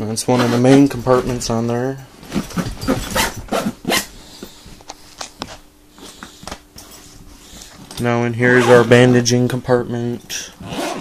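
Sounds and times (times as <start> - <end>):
faint steady hum: 0.0 - 11.0
zipper being opened: 2.3 - 4.1, 8.6 - 8.9, 10.6 - 11.0.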